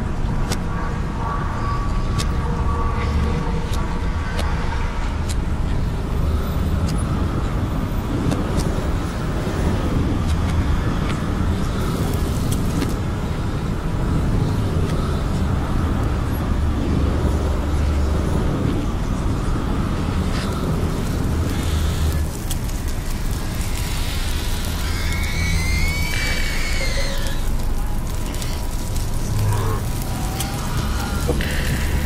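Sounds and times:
moving vehicle rumble: 0:00.0 - 0:32.0
faint clicks: 0:20.3 - 0:32.0.

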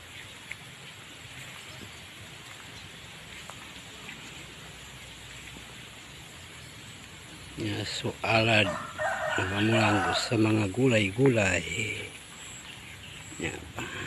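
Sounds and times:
outdoor background hiss: 0:00.0 - 0:14.0
chirps: 0:11.8 - 0:14.0.

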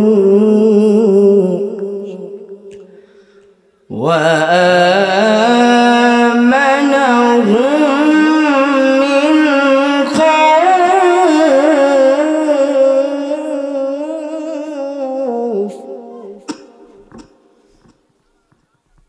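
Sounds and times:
man chanting through microphone: 0:03.9 - 0:17.6.

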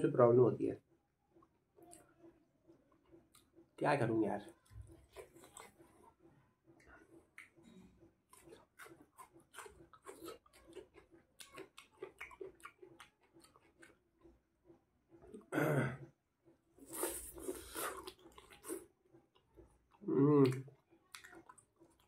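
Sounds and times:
biting and chewing: 0:04.4 - 0:15.4, 0:16.4 - 0:22.0
wet chewing: 0:04.4 - 0:15.5, 0:16.4 - 0:22.0.

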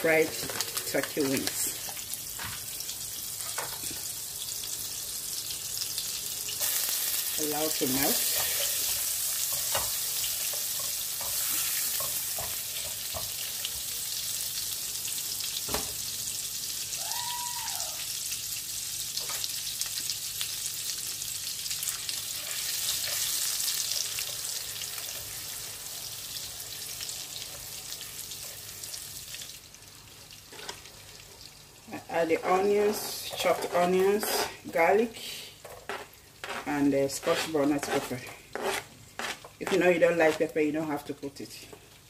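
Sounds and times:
butter sizzling in frying pan: 0:00.0 - 0:35.0
spatula clicks and scrapes: 0:35.8 - 0:40.4.

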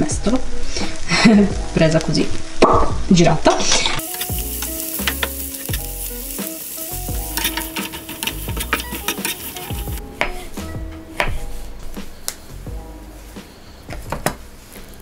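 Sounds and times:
vegetables sizzling in a pan: 0:03.6 - 0:10.0
spatula scraping and tapping pan: 0:04.0 - 0:05.9, 0:07.1 - 0:10.0.

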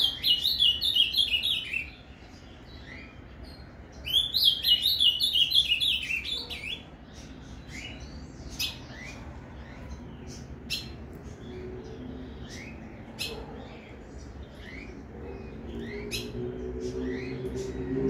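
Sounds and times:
bird chirp calls: 0:00.0 - 0:18.0.

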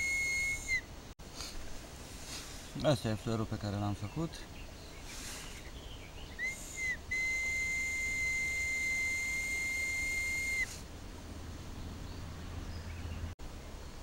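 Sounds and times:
willow whistle high note: 0:00.0 - 0:00.9, 0:06.4 - 0:10.8.

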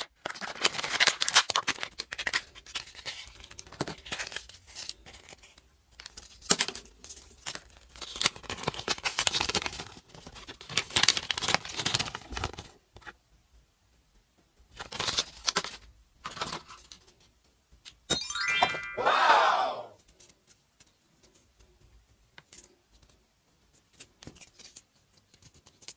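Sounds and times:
paper crinkling: 0:00.1 - 0:12.7, 0:23.8 - 0:25.9.

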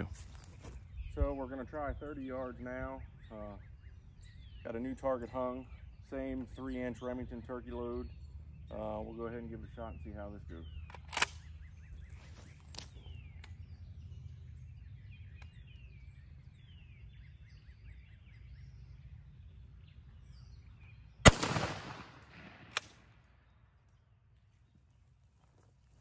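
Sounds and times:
birds chirping faintly: 0:00.0 - 0:26.0
sharp click: 0:10.9 - 0:11.4
shotgun shot with echo: 0:21.2 - 0:23.0.

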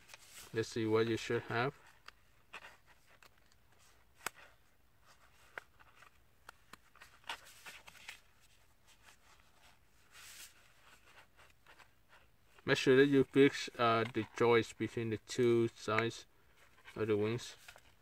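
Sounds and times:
paper crinkling and rustling: 0:00.0 - 0:12.3.

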